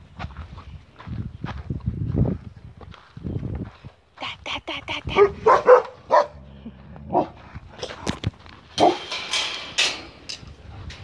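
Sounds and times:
dog barking: 5.2 - 6.4, 7.1 - 7.4, 8.8 - 9.1
rough noise: 7.8 - 11.0.

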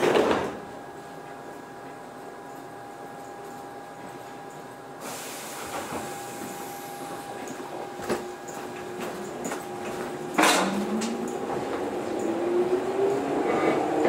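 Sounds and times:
electric train humming: 0.8 - 14.0
air hiss: 5.0 - 7.0
traction motors rising whine: 8.3 - 14.0.

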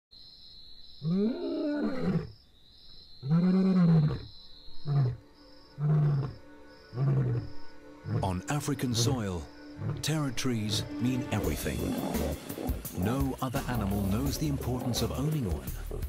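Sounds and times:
lion roaring: 1.0 - 2.3, 5.8 - 9.2, 9.8 - 10.1, 11.4 - 16.0
lion grunting calls: 1.0 - 2.4, 3.2 - 5.2, 5.8 - 10.2, 11.4 - 16.0.

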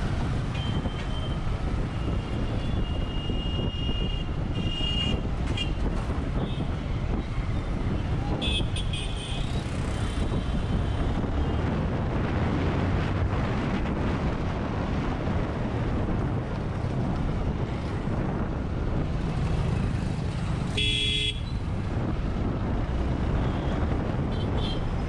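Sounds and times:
wind noise on microphone: 0.0 - 25.0
vehicle horn toot: 20.8 - 21.5.

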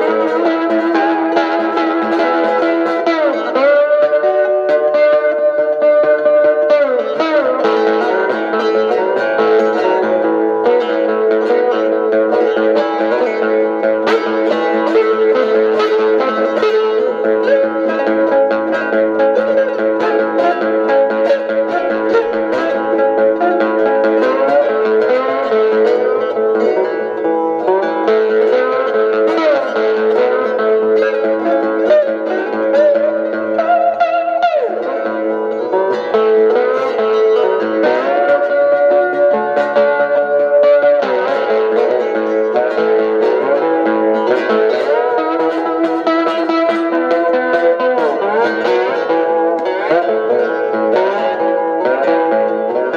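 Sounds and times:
twangy guitar picking: 0.0 - 52.9.

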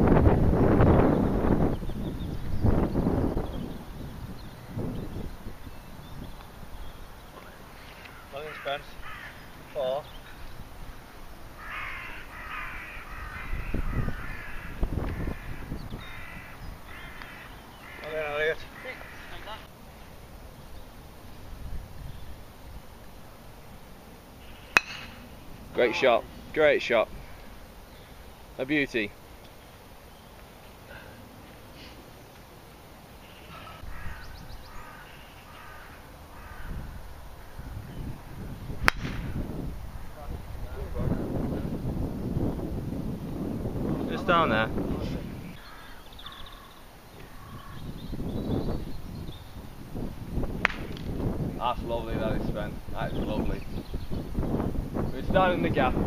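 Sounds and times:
bird calls: 1.0 - 19.7, 24.4 - 38.5, 45.2 - 49.7, 53.0 - 55.6
crow cawing: 7.8 - 9.9, 11.6 - 19.7, 33.2 - 38.5, 45.6 - 47.9
golf club striking ball: 24.7 - 25.4, 38.8 - 39.4.

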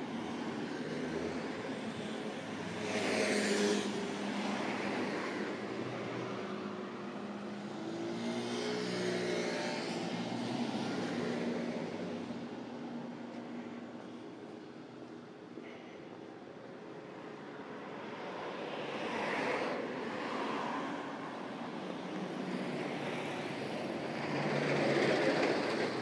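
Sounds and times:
cars driving past: 17.1 - 26.0.

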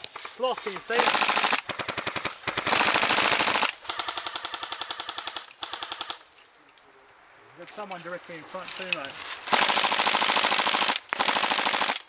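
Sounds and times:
airsoft gun full-auto bursts: 0.0 - 6.2, 9.5 - 12.0.

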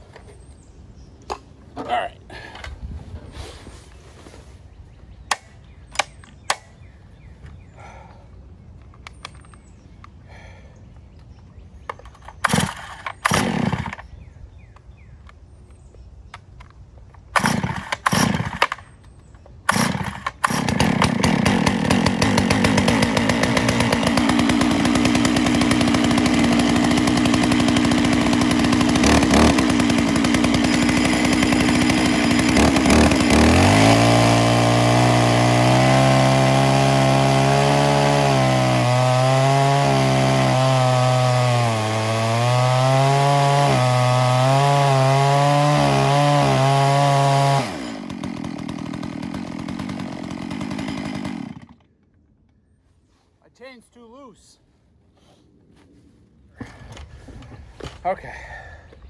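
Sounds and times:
chainsaw cutting wood: 12.2 - 14.1, 17.3 - 18.9, 19.7 - 52.3
chainsaw running at high revs: 12.4 - 14.0, 17.4 - 18.8, 19.7 - 51.9.

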